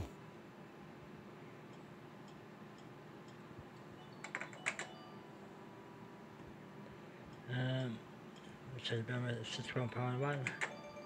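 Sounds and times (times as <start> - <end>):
faint machine hum: 0.0 - 11.0
soft tick: 1.7 - 3.9.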